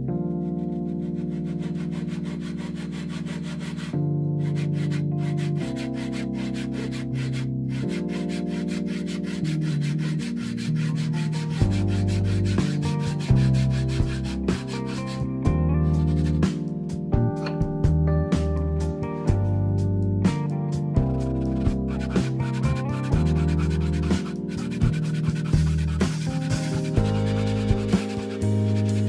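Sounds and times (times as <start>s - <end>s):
background music with held chords: 0.0s - 29.0s
hand saw cutting wood: 0.7s - 15.3s, 21.5s - 29.0s.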